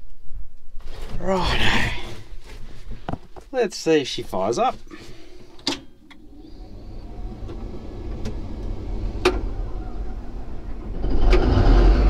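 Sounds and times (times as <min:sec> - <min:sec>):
diesel engine starting and running: 0:05.0 - 0:12.0.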